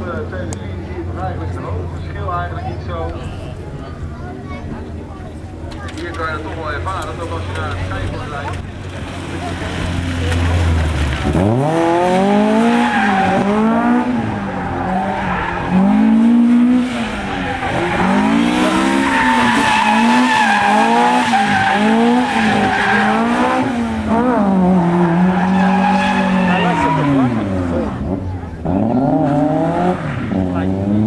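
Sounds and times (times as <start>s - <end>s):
car engine revving: 6.2s - 31.0s
tyre squeal: 25.0s - 27.2s.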